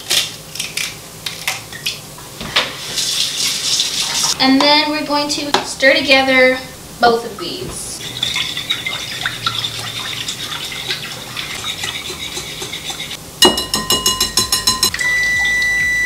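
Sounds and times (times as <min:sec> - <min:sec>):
batter stirred in glass bowl: 0:08.0 - 0:14.9
oven control panel beeping: 0:13.8 - 0:16.0.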